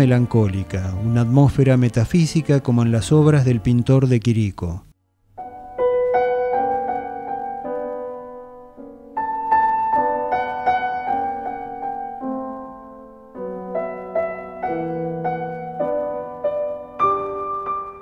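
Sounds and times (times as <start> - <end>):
soft piano melody: 5.4 - 18.0.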